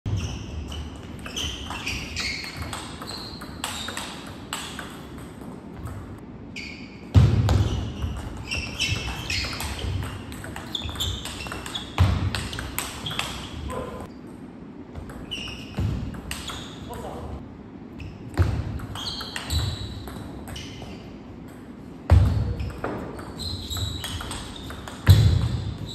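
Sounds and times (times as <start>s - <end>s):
shoes squeaking on floor: 0.1s - 5.1s, 6.5s - 14.2s, 15.1s - 17.4s, 18.0s - 21.2s, 22.2s - 25.9s.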